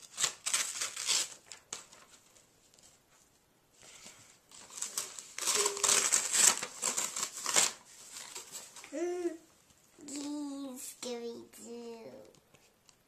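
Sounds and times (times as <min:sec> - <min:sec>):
tissue paper crinkling: 0:00.0 - 0:03.2, 0:03.9 - 0:09.4.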